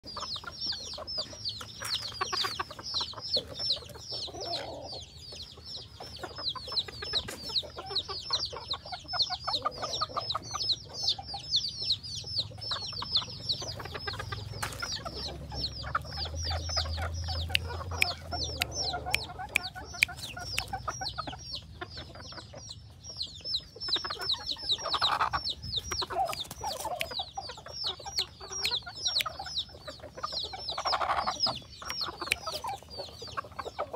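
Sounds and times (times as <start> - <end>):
rooster clucking: 0.0 - 22.8, 23.4 - 33.9
fast high-pitched chirping: 10.5 - 33.9.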